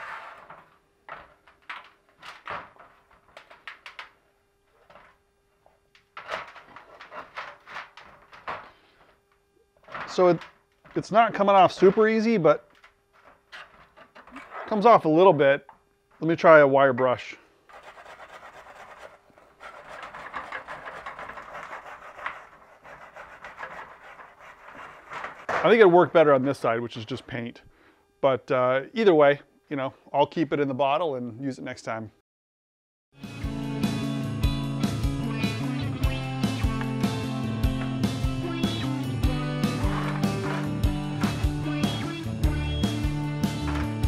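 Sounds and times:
metal scraper scraping paint: 0:00.0 - 0:00.6, 0:17.7 - 0:26.3, 0:39.4 - 0:42.0.

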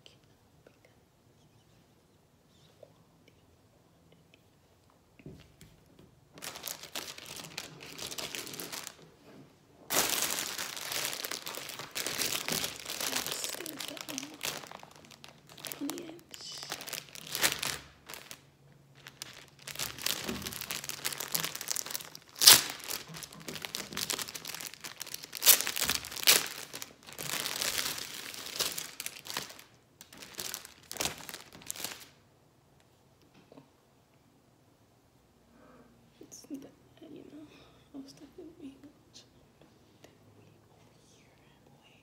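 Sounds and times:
plastic packaging crinkling: 0:06.4 - 0:09.1, 0:09.9 - 0:32.2.

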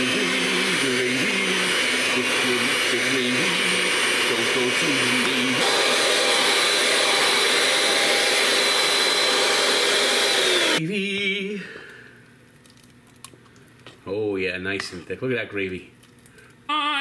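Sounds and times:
electric mixer running: 0:00.0 - 0:10.8.

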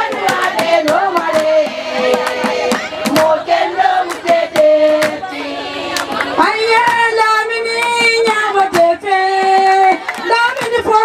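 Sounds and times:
women singing in unison: 0:00.0 - 0:11.0
hand clapping: 0:08.6 - 0:10.8.

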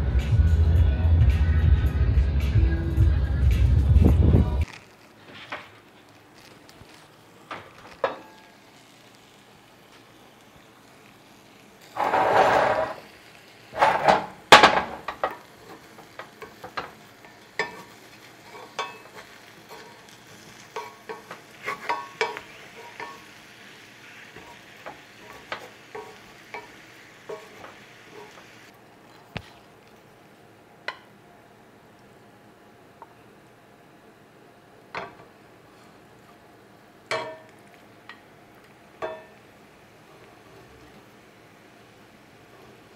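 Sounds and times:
vegetables sizzling in skillet: 0:04.6 - 0:42.9
wooden spatula scraping pan: 0:11.9 - 0:13.0, 0:17.6 - 0:23.2.

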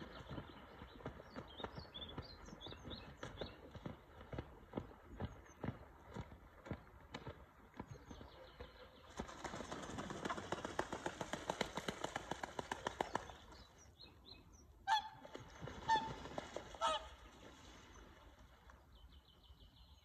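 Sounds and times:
swans splashing across water: 0:00.0 - 0:14.0, 0:14.8 - 0:19.5
swans honking: 0:14.8 - 0:17.4.

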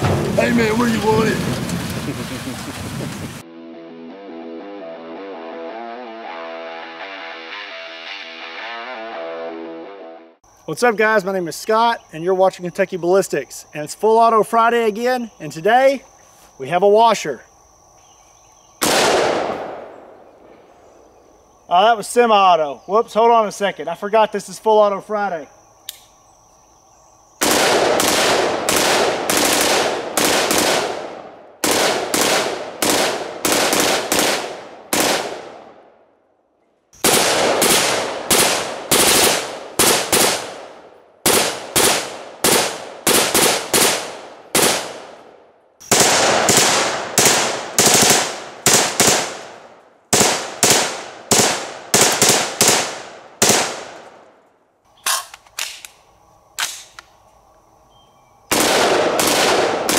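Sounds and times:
automatic rifle firing bursts: 0:18.8 - 0:19.8, 0:27.4 - 0:35.6, 0:37.0 - 0:45.2, 0:45.9 - 0:54.0, 0:58.5 - 0:59.9.

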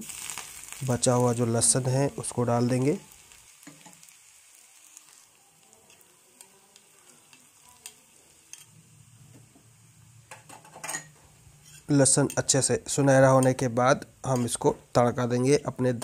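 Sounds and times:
garlic sizzling in oil: 0:00.0 - 0:16.0
metal spoon clicking on pan: 0:05.9 - 0:08.7.

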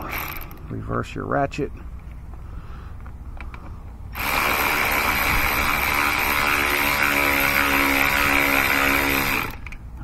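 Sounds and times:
electric ratchet motor whining: 0:04.1 - 0:09.8.

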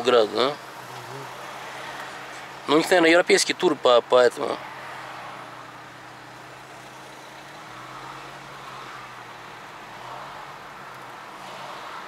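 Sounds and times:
tyre and road hiss: 0:00.0 - 0:03.3.

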